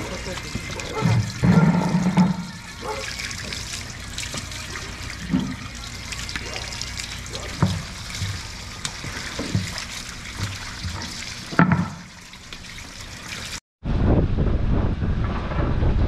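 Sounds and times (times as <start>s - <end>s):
water trickling: 0.0s - 13.6s
wind rumble on microphone: 13.8s - 16.0s.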